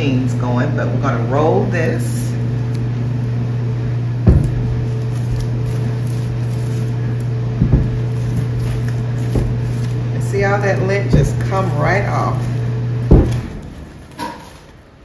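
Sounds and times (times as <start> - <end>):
household machine humming: 0.0 - 15.0
knocks: 4.2 - 4.7, 7.6 - 8.0, 13.1 - 14.4.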